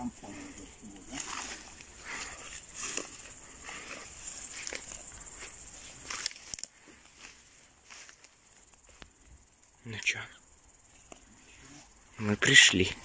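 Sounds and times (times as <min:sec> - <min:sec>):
branches and needles rustling: 0:00.0 - 0:13.0
insects chirring: 0:00.0 - 0:13.0
footsteps shuffling through undergrowth: 0:00.8 - 0:09.5.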